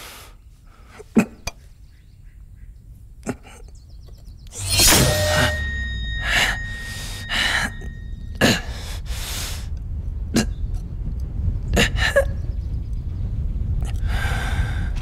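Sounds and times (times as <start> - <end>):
low steady hum: 4.6 - 10.2.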